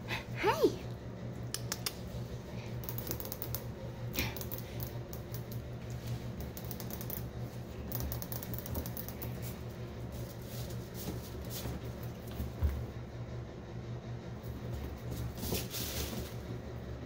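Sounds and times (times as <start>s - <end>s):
steady low hum: 0.0s - 17.0s
claws clicking on tile floor: 1.5s - 2.1s, 2.8s - 5.7s, 6.3s - 9.6s.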